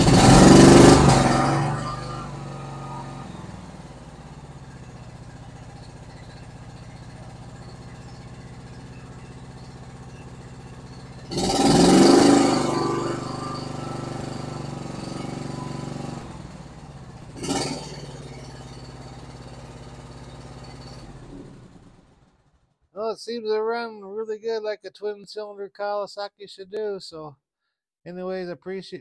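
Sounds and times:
mower engine idling and revving: 0.0s - 22.8s.

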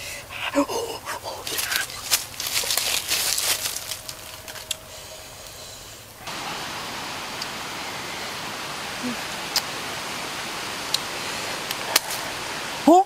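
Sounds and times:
steady outdoor hiss: 0.0s - 13.0s
dry leaves crackling and rustling: 1.3s - 5.6s.

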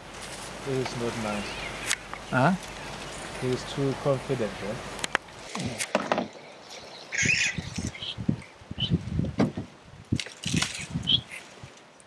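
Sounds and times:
bird chirping: 0.9s - 3.8s, 4.8s - 9.0s, 11.0s - 11.5s
low knocks and rustles: 9.0s - 11.1s.

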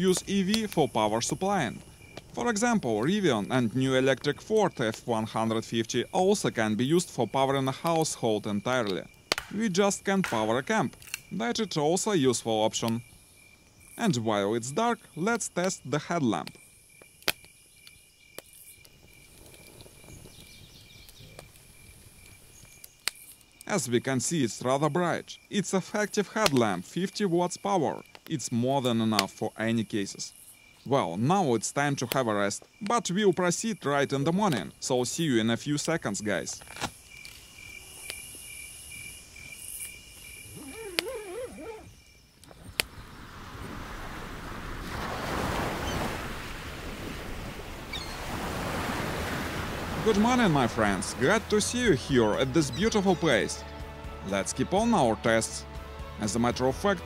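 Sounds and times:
crickets chirping: 0.0s - 57.0s
high thin insect hiss: 16.5s - 30.9s, 31.5s - 46.4s.

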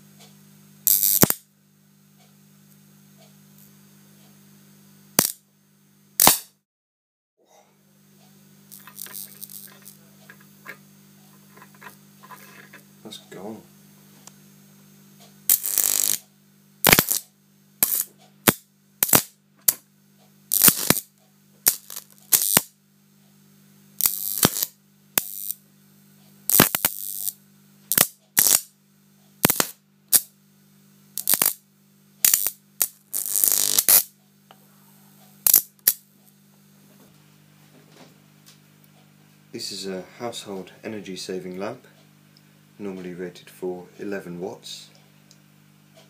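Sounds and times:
steady low hum: 0.0s - 6.6s, 7.4s - 46.0s
electric arcs popping: 0.8s - 1.5s, 5.1s - 5.4s, 6.2s - 6.6s, 8.7s - 10.8s, 15.5s - 19.8s, 20.5s - 22.8s, 24.0s - 25.6s, 26.5s - 28.7s, 29.4s - 30.3s, 31.2s - 31.6s, 32.2s - 34.2s, 35.4s - 36.1s.

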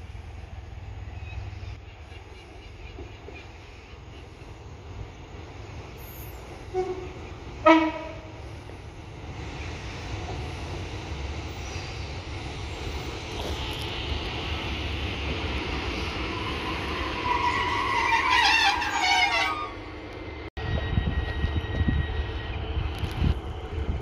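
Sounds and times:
train engines and wheels rumbling: 0.0s - 24.0s
two-tone train horn: 6.7s - 8.4s, 17.2s - 19.8s.

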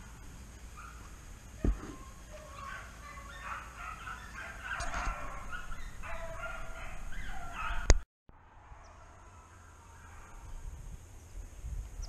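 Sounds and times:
hounds baying: 0.0s - 8.0s.

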